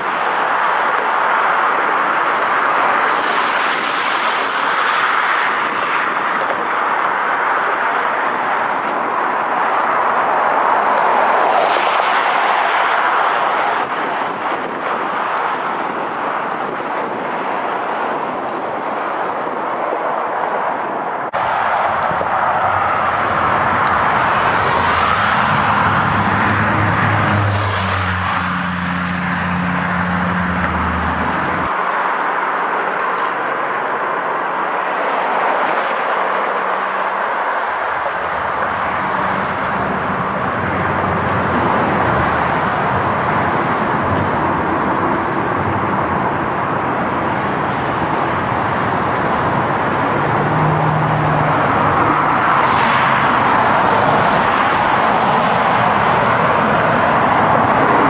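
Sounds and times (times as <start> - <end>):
freeway traffic rushing: 0.0 - 58.0
nearby engine hum: 21.3 - 37.3.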